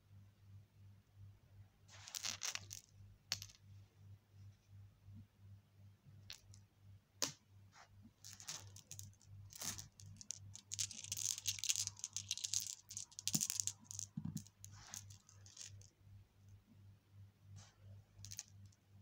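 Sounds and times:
glass marbles clinking in hand: 8.4 - 15.8.

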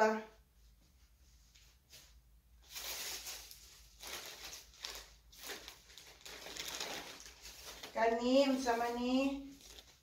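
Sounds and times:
plastic bags rustling: 2.6 - 10.0.

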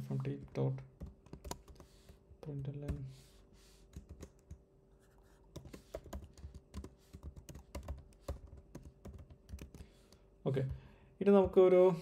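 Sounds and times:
computer keyboard typing: 1.0 - 1.9, 3.9 - 4.6, 5.5 - 9.9.

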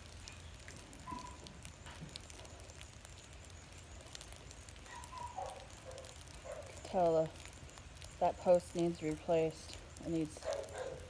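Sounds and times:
faint crackles and ticks: 0.0 - 11.0.

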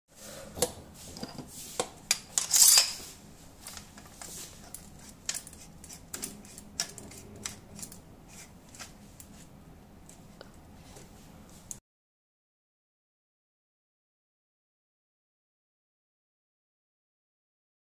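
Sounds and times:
metal scraping rasp: 4.2 - 9.0.

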